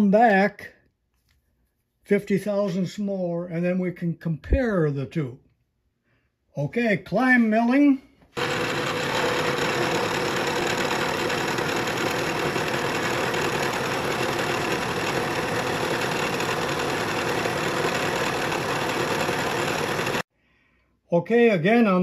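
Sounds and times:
milling machine cutting metal: 8.4s - 20.2s.

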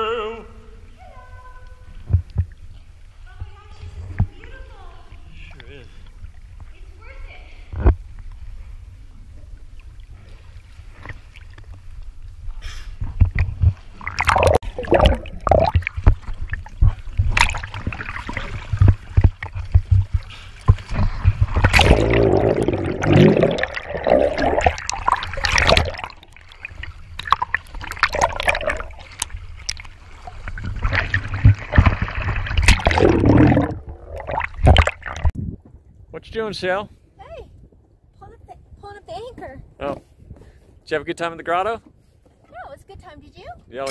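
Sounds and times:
water splashing and gurgling: 9.2s - 35.4s.

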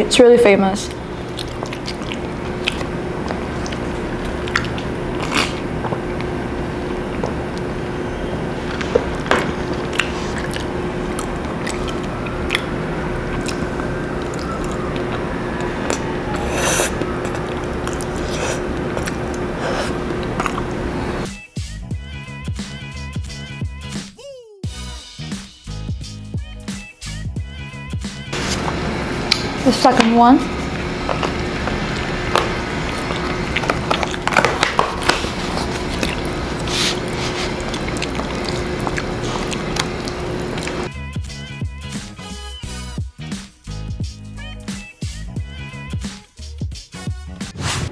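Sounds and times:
background hiss and hum: 0.0s - 21.3s, 28.3s - 40.9s
person chewing food: 0.9s - 7.7s, 8.6s - 21.3s, 30.5s - 40.9s
slurping noodles: 1.0s - 7.4s, 8.6s - 21.3s, 30.5s - 40.9s, 47.5s - 47.9s.

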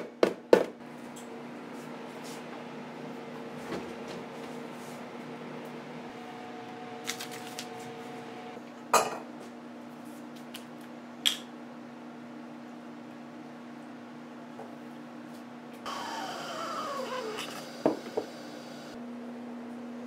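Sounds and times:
steady low hum: 0.8s - 8.9s.

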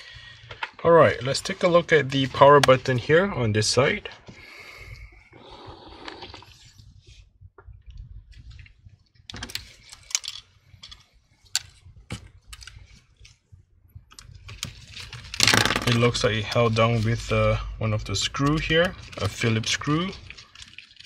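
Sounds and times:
soft rustling of gloved hands: 16.0s - 21.0s.

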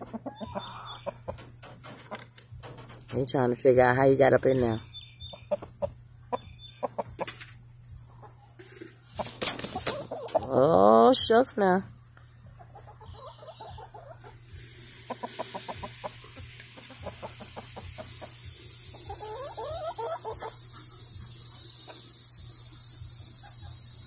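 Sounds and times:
chickens clucking: 0.0s - 3.5s, 4.3s - 11.0s, 12.2s - 24.0s
high insect trill: 12.5s - 24.0s.

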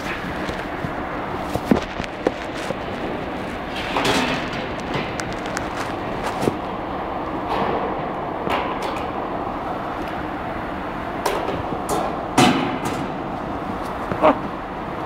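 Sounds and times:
clatters and knocks of crates: 0.0s - 6.7s.

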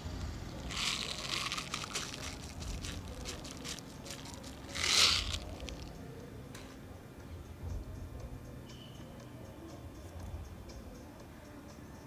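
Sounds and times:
bbs rattling in plastic bottle: 0.6s - 5.9s
bbs pouring into hand: 0.7s - 5.9s.

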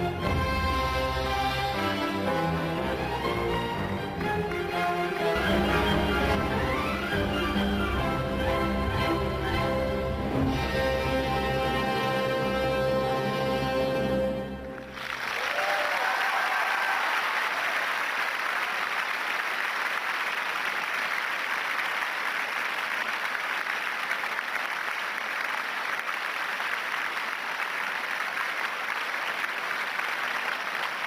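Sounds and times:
ballet music: 0.0s - 15.0s
audience applauding: 3.2s - 7.6s, 14.6s - 31.0s
crowd cheering: 14.9s - 22.6s.

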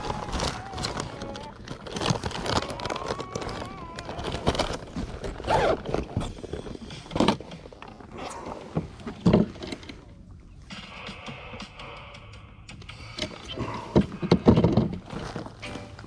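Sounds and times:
gear and clothing rustling: 0.0s - 10.2s, 13.6s - 16.0s.

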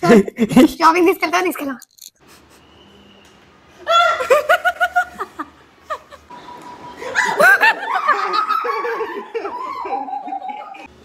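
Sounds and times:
people laughing and squealing: 3.8s - 10.9s.

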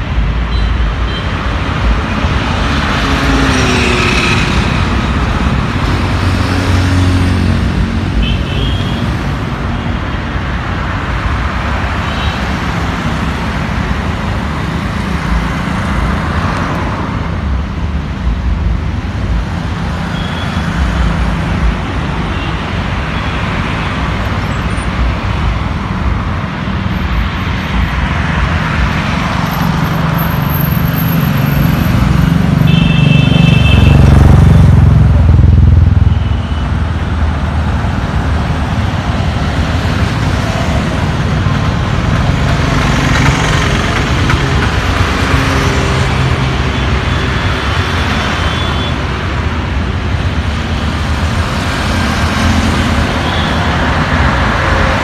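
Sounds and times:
road traffic: 0.0s - 55.0s.

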